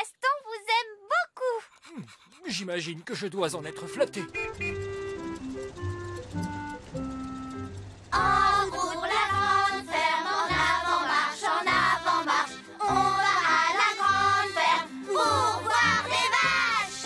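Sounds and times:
light instrumental accompaniment: 0:03.2 - 0:17.0
children singing in chorus: 0:08.2 - 0:17.0.

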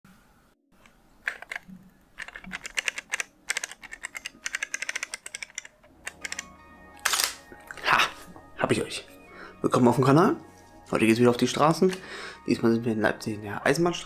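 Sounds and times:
music: 0:01.2 - 0:14.0
camera shutter clicking: 0:02.8 - 0:07.4.

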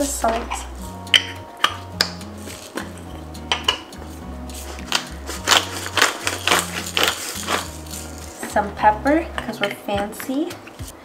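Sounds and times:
background music with bass line: 0:00.0 - 0:11.0
gritty salt grinding: 0:01.7 - 0:08.5.

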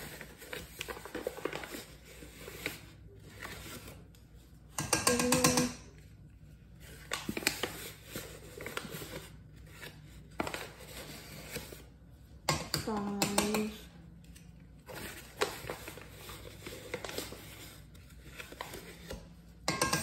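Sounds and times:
paper rustling: 0:00.0 - 0:04.1, 0:06.6 - 0:12.0, 0:14.3 - 0:19.3.

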